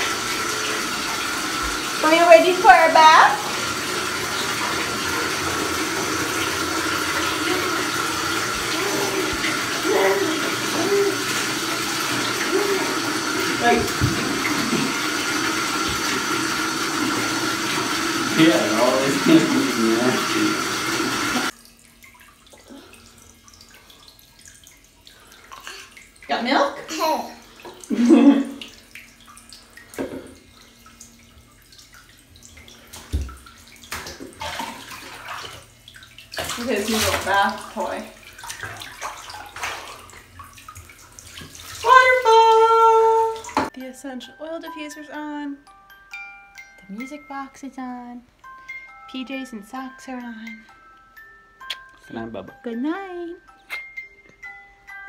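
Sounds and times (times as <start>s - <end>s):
water running into bathtub: 0.0s - 43.7s.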